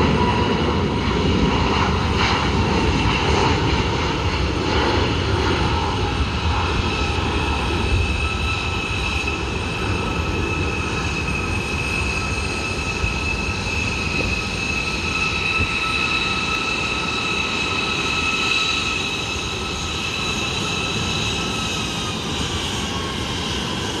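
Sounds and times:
jet engines at takeoff thrust: 0.0 - 24.0.

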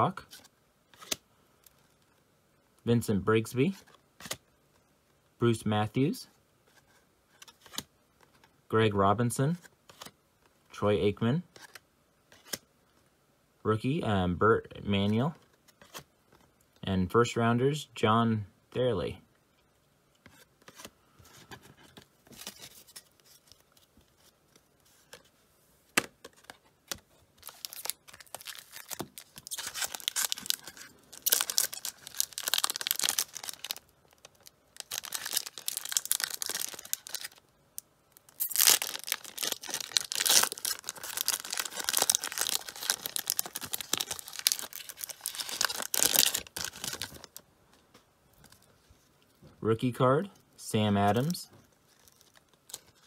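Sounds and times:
foil wrapper crinkling and tearing: 27.4 - 37.5, 38.1 - 47.4, 51.9 - 53.0.

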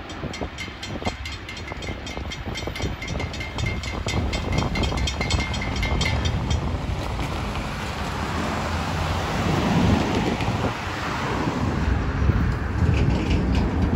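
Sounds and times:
railroad crossing bell ringing: 0.0 - 6.9
cars driving over crossing: 0.0 - 13.9
wind on microphone: 0.0 - 13.9.

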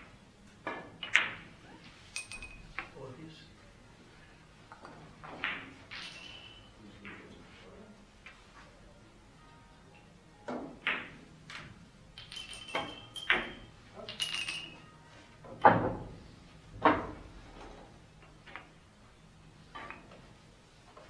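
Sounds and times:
billiard balls clicking: 0.6 - 3.0, 4.7 - 7.2, 10.5 - 14.9, 19.7 - 20.2.

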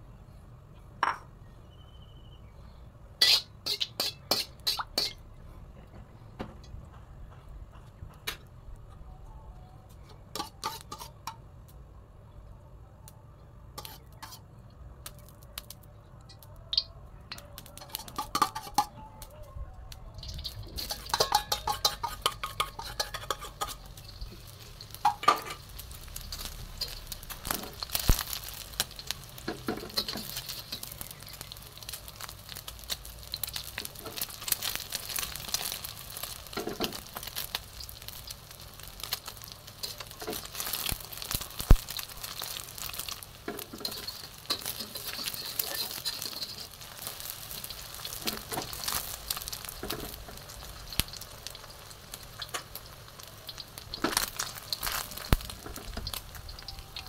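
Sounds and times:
egg sizzling in oil: 3.2 - 5.2, 10.3 - 11.4, 13.8 - 15.8, 16.7 - 18.9, 20.2 - 57.0
spatula scraping a wok: 3.2 - 5.3, 10.1 - 11.4, 13.8 - 14.5, 17.8 - 19.0, 20.2 - 51.9.

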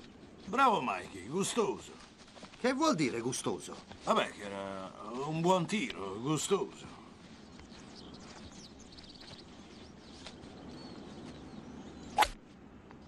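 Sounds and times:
faint bird chirps: 6.1 - 12.4.

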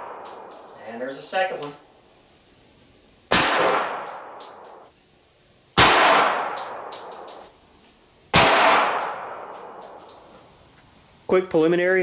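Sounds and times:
brass casings clinking: 0.1 - 1.0, 4.0 - 5.0, 6.5 - 7.6, 8.9 - 10.4
pistol shots echoing: 3.3 - 4.8, 5.8 - 7.4, 8.3 - 10.0.

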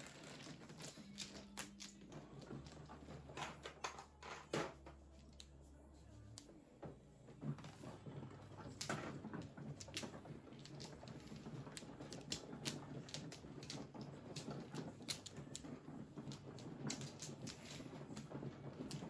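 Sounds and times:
mahjong tiles clicking: 0.3 - 2.8, 9.4 - 15.6.

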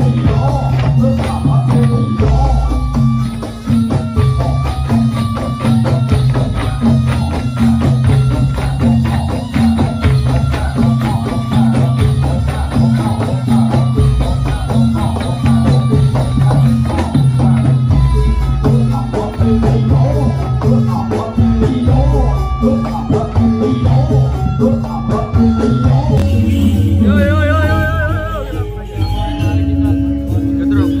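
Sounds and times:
gamelan music: 0.0 - 31.0.

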